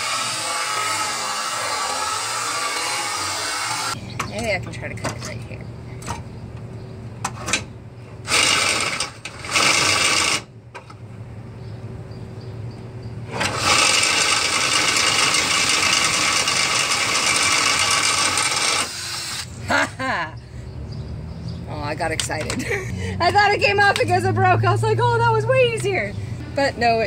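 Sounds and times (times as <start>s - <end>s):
cordless drill motor hum: 13.3s - 19.5s.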